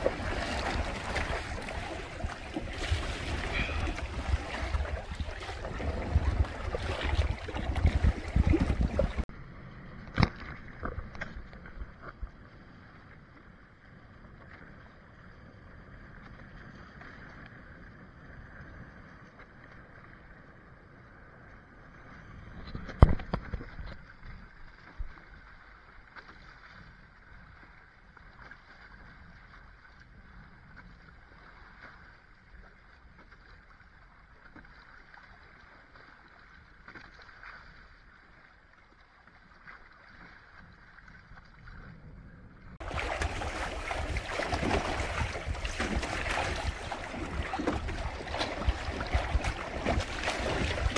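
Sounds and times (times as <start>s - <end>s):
wind noise: 0.0s - 9.3s, 42.0s - 50.9s
water rushing along a hull: 0.0s - 50.9s
waves slapping hull: 0.0s - 50.9s.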